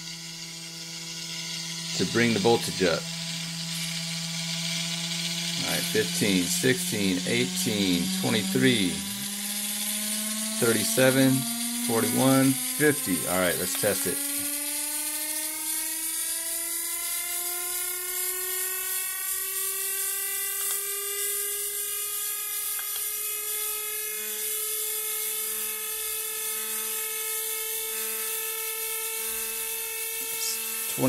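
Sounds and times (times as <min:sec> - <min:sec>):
motor whine rising in pitch: 0:00.0 - 0:31.0.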